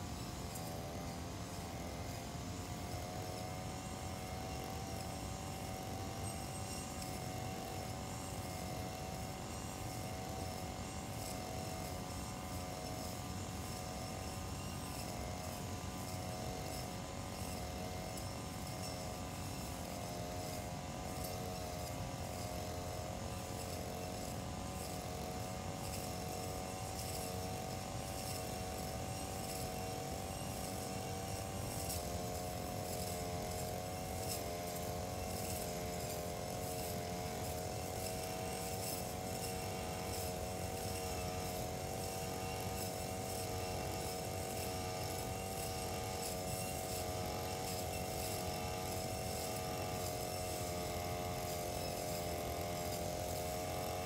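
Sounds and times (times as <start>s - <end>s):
brush cutter engine cutting grass: 0.0s - 54.0s.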